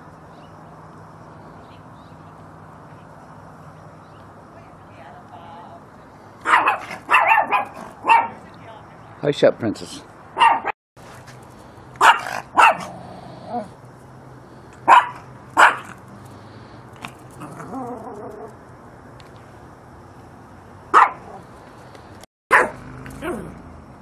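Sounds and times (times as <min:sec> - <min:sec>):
small dog barking: 0:06.4 - 0:08.4, 0:10.4 - 0:10.8, 0:12.0 - 0:13.1, 0:14.8 - 0:16.0, 0:20.9 - 0:21.4, 0:22.5 - 0:23.6.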